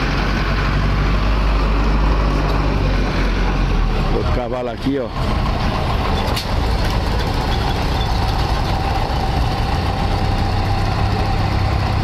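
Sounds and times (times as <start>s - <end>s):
engine idling: 4.8s - 12.0s.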